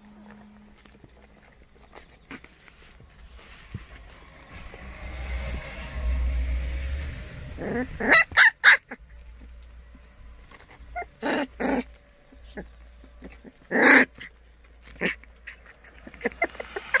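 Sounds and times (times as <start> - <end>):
puppies yelping: 7.4 - 17.0.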